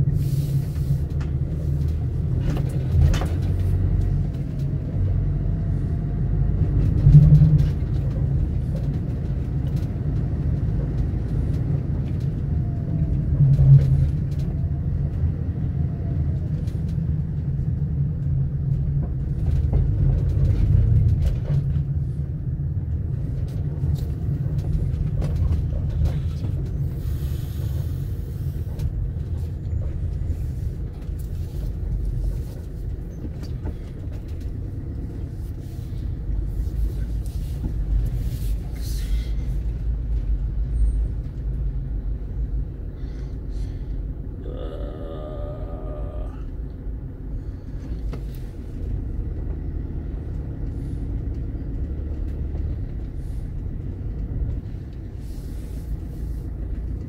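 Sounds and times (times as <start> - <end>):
road vehicle rumble: 0.0 - 57.0.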